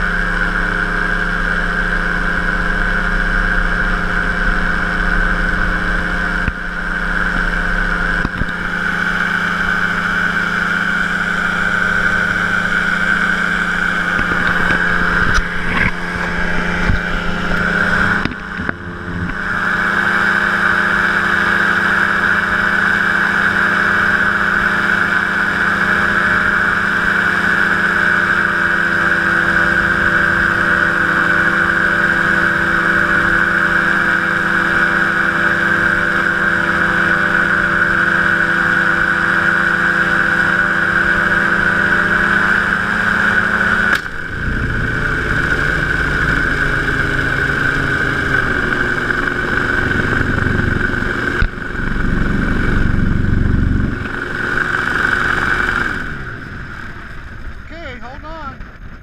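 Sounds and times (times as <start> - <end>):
engine and propeller drone: 0.0 - 59.0.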